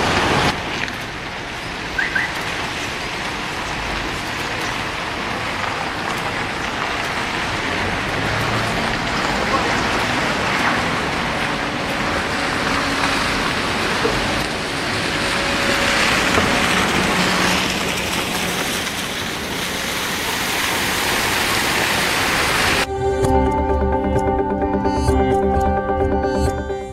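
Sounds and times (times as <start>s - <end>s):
tyres swishing through water: 0.0s - 22.9s
music: 22.9s - 26.9s.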